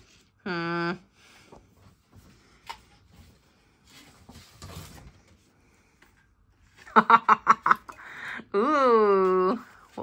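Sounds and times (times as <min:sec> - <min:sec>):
person laughing: 0:06.8 - 0:08.7.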